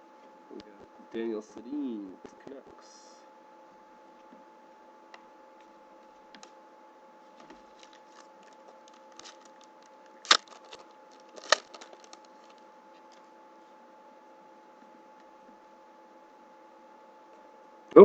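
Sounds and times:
cards rustling and clicking: 0:07.4 - 0:12.6
foil wrapper crackling: 0:07.7 - 0:12.6.

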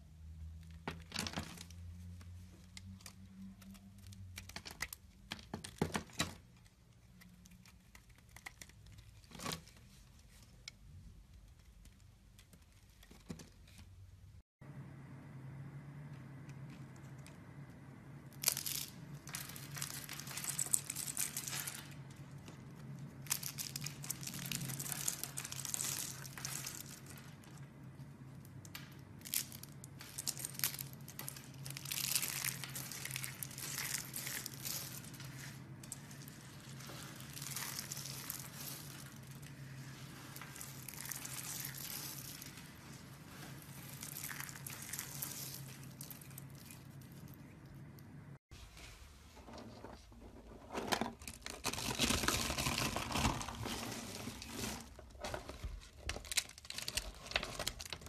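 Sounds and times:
soap flakes crunching by hand: 0:18.4 - 0:27.7, 0:28.3 - 0:47.4.

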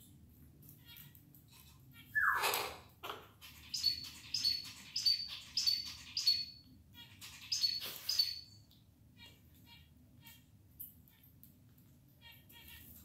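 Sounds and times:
parrot chirping: 0:01.9 - 0:02.8, 0:03.4 - 0:08.6
parrot squawking: 0:02.0 - 0:02.8.

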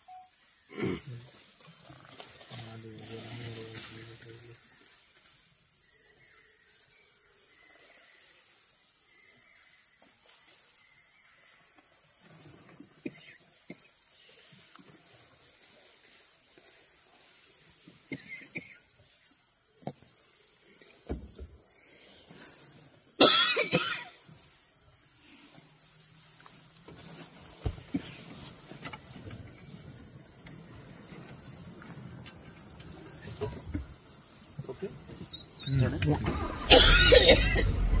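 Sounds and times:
high-pitched insect chorus: 0:00.0 - 0:38.0
person coughing: 0:00.7 - 0:01.2, 0:23.2 - 0:24.1, 0:36.7 - 0:37.8.

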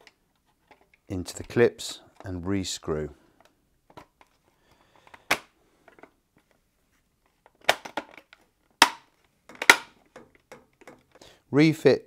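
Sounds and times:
loud plastic snap: 0:05.2 - 0:05.5, 0:07.6 - 0:10.0
sharp plastic clicks: 0:07.5 - 0:11.2.

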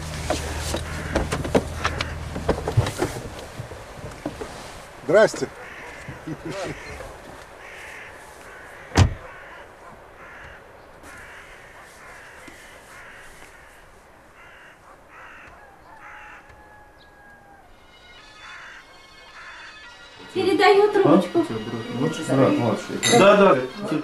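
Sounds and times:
crows cawing: 0:00.6 - 0:02.4, 0:05.4 - 0:20.2
sharp thump: 0:08.9 - 0:09.2.

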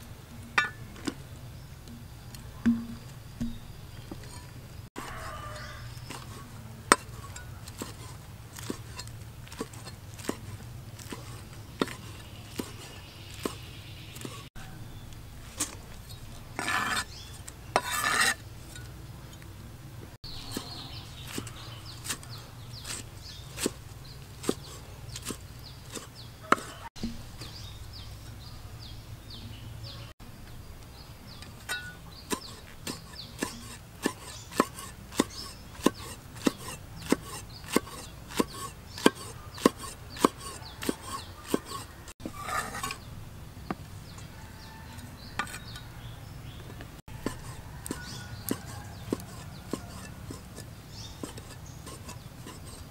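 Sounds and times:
cleaver chopping on wooden block: 0:02.7 - 0:03.6, 0:24.4 - 0:27.2, 0:31.8 - 0:41.8
scraping rustle: 0:03.9 - 0:14.5, 0:15.4 - 0:19.4, 0:20.3 - 0:28.6, 0:31.3 - 0:43.1, 0:46.6 - 0:52.9.

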